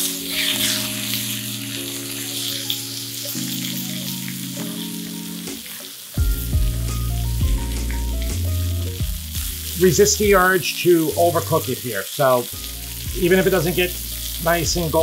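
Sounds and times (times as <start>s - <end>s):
chicken sizzling in hot oil: 0.0s - 15.0s
background music with bass beat: 6.2s - 10.5s, 12.6s - 15.0s.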